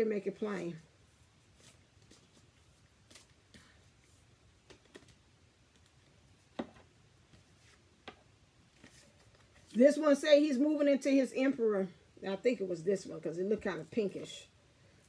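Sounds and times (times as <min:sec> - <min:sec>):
cards being shuffled by hand: 0:00.6 - 0:06.6, 0:08.7 - 0:09.8.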